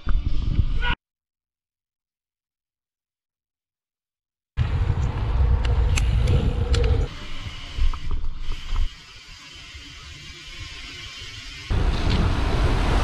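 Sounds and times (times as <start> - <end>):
boards and bike creaking: 4.6 - 13.0.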